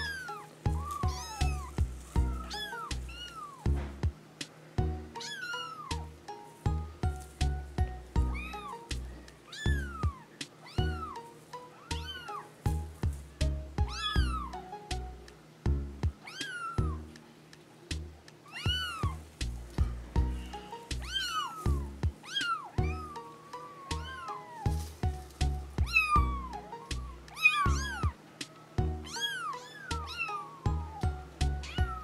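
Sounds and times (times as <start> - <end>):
kittens meowing: 0.0 - 3.7, 5.2 - 6.1, 8.2 - 12.6, 13.8 - 14.6, 16.2 - 17.1, 18.4 - 19.3, 20.4 - 28.2, 29.0 - 32.0
background music with low beat: 0.0 - 5.3, 5.9 - 23.3, 23.9 - 29.3, 29.9 - 32.0.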